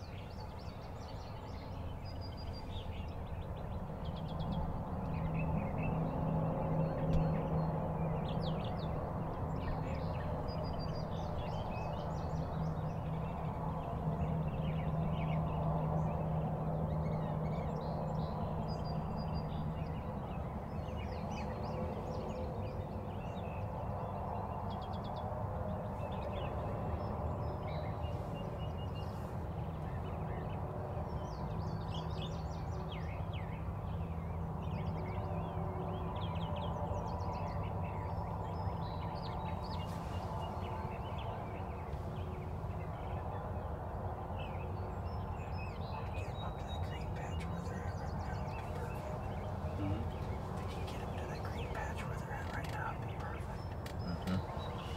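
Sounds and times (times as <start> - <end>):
songbirds chirping and singing: 0.0 - 54.9
steady low hum: 32.2 - 54.9.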